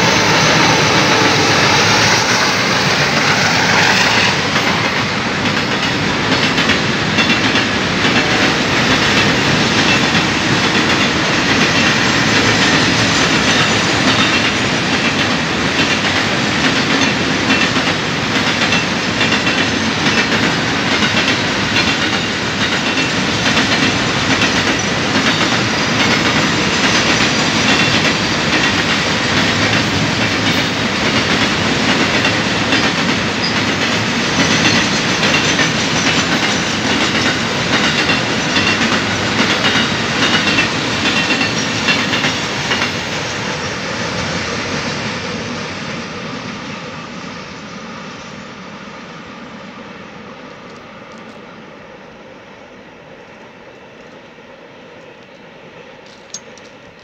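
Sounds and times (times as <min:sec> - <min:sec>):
train wheels rumbling on rails: 0:00.0 - 0:57.0
wheels clicking over rail joints: 0:02.2 - 0:43.2.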